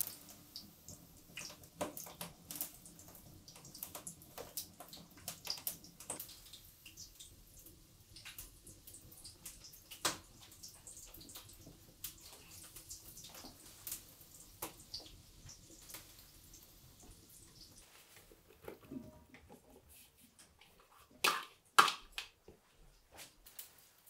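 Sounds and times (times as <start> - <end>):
patties sizzling in hot oil: 0.0 - 18.0
oil crackling pops: 9.4 - 10.5.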